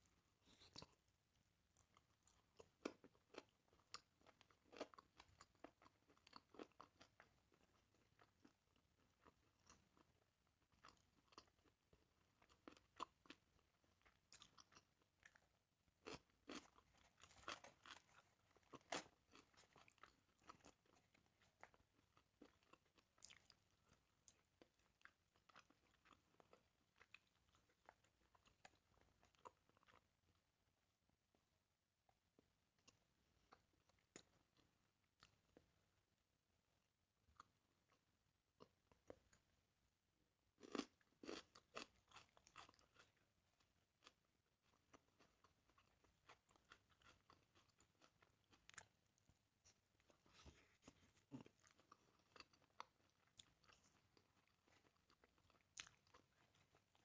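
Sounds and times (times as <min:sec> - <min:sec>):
person chewing with mouth clicks: 0:40.6 - 0:43.2.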